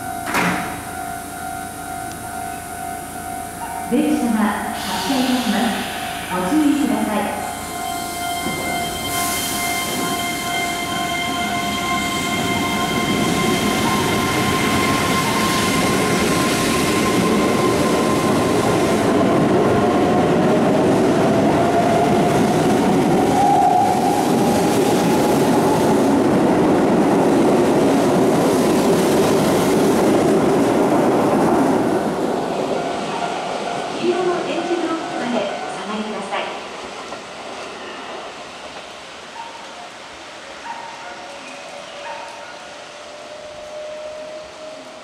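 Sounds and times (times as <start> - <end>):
train wheels rolling on rails: 0.0 - 45.0.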